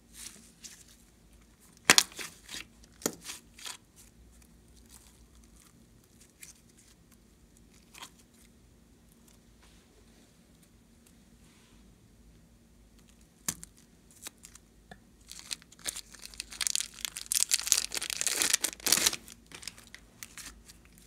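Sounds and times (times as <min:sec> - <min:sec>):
slime popping and crackling: 0:15.3 - 0:20.0.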